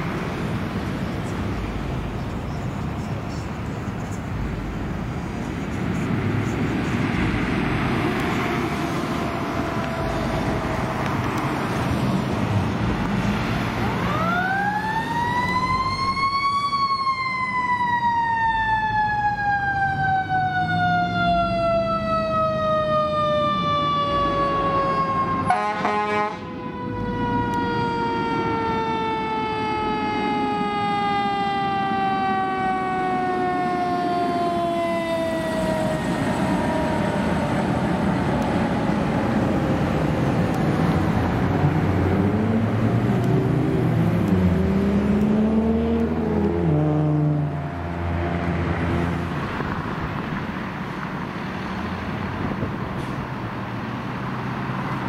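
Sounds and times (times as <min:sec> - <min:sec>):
fire engine rumble: 0:00.0 - 0:45.3, 0:46.0 - 0:55.0
mechanical siren wailing: 0:08.1 - 0:11.1, 0:13.8 - 0:39.9.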